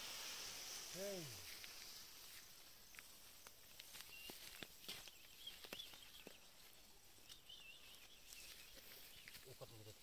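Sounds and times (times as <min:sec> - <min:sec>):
high bird chirps: 0:04.0 - 0:06.6, 0:07.2 - 0:09.5.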